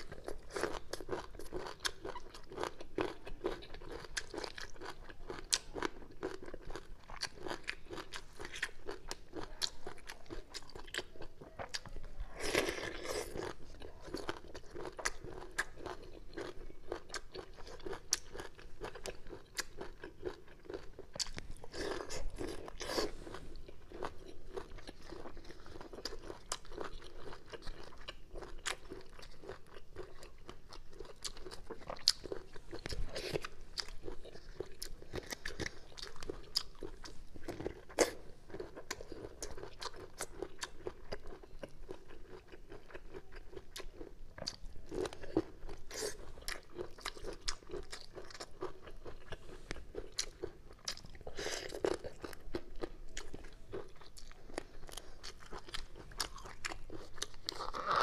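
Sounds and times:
chewing crunchy bamboo shoots: 0.0s - 58.0s.

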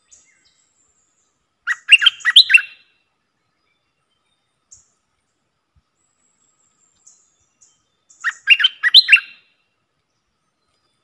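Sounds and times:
bird whistled song phrase: 1.7s - 2.8s, 7.1s - 9.4s.

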